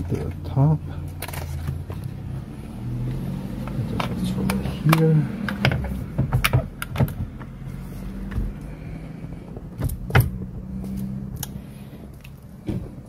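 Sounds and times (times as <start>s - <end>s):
clicks and knocks of parts handled: 0.0s - 2.2s, 3.6s - 7.6s, 9.4s - 13.0s.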